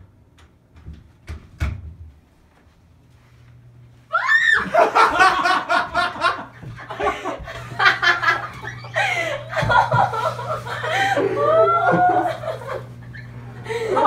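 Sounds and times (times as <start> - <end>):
people laughing and exclaiming: 4.1 - 14.0.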